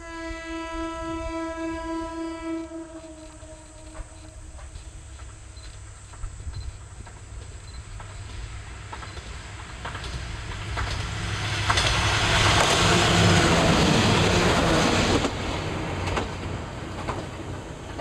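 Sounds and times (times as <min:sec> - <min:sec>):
train horn: 0:00.0 - 0:05.1
train rumble: 0:00.0 - 0:18.0.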